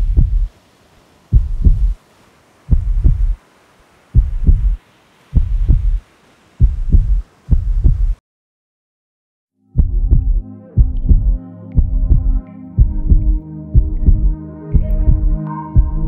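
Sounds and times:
heartbeat thumps: 0.0 - 0.5, 1.3 - 2.0, 2.7 - 3.4, 4.2 - 6.0, 6.6 - 8.2, 9.8 - 16.0
faint hum: 1.3 - 4.8, 9.7 - 16.0.

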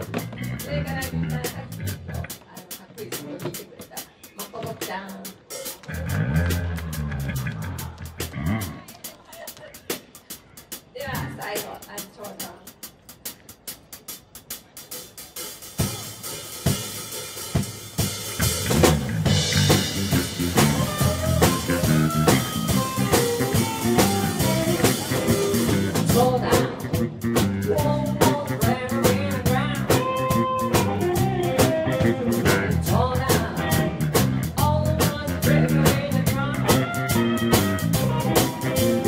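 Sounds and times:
electric bass: 0.0 - 2.4, 5.8 - 8.8, 18.3 - 39.0
drum kit: 0.0 - 39.0
electric guitars: 18.4 - 39.0.

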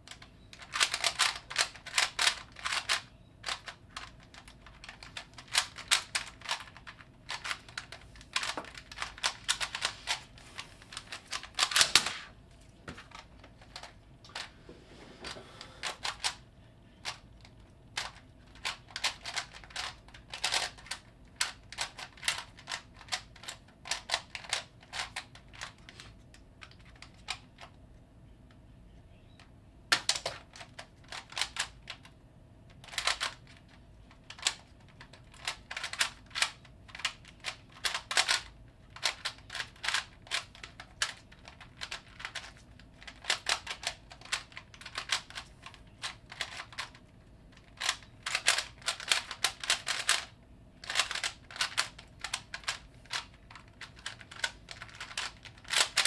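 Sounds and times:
puzzle cube plastic clicks: 0.1 - 10.3, 10.9 - 12.2, 15.8 - 16.4, 17.0 - 27.8, 29.9 - 56.0.

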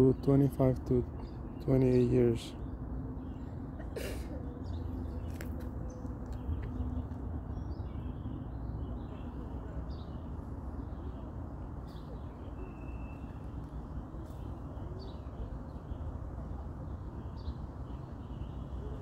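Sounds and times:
faint bird chirps: 11.0 - 16.1.

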